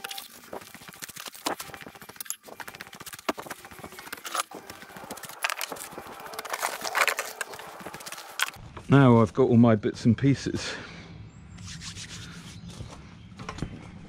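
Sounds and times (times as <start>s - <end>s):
footsteps on gravel: 0.0s - 8.6s.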